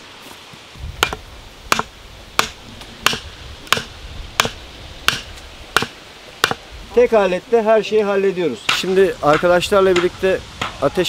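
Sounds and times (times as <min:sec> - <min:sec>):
hatchet striking wood: 0:01.0 - 0:06.6, 0:08.7 - 0:10.9.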